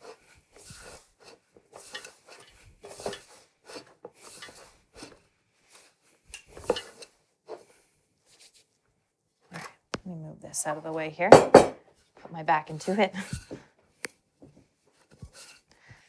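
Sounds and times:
hands kneading dough in bowl: 0:00.0 - 0:08.9.

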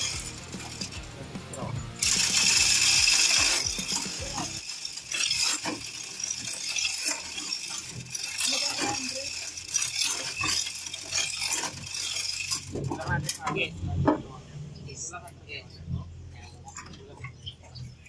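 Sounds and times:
chain hoist links clinking: 0:00.0 - 0:13.6.

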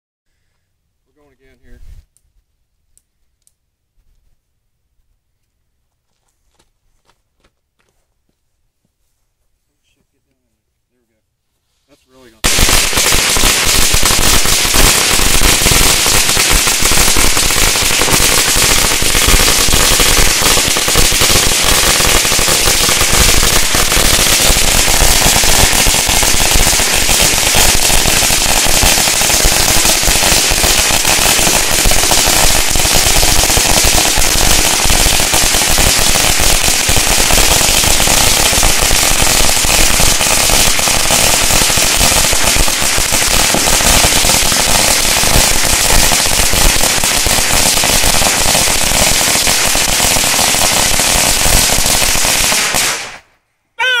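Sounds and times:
firecrackers going off: 0:12.4 - 0:54.0.

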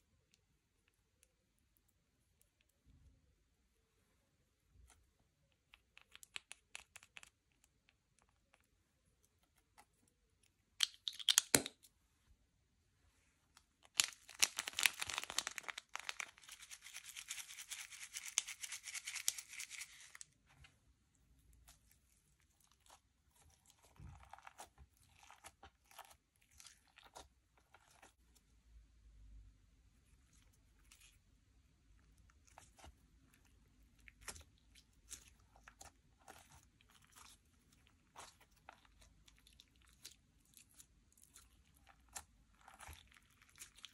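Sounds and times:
slime crunching: 0:13.8 - 0:20.2, 0:21.4 - 0:28.2, 0:31.9 - 0:43.9
slime clicking and crackling: 0:13.9 - 0:20.1.

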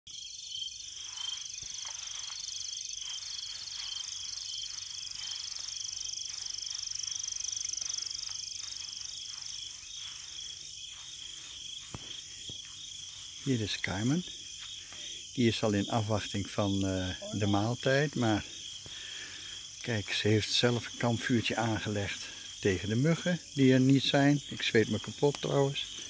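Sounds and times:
crickets chirring: 0:00.1 - 0:26.0
insect trilling in bursts: 0:00.2 - 0:16.0.

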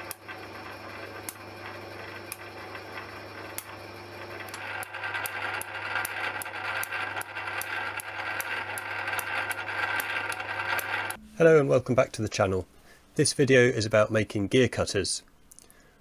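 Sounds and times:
lathe motor hum: 0:00.0 - 0:11.2
rough grinding noise: 0:00.0 - 0:11.2.

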